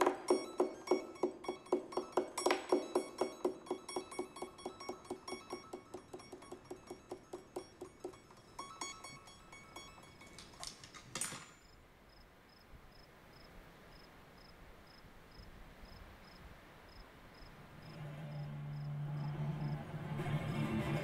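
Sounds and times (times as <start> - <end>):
cricket chirping: 0.2 - 10.8, 11.4 - 19.8
electric guitar picking notes: 18.0 - 21.0.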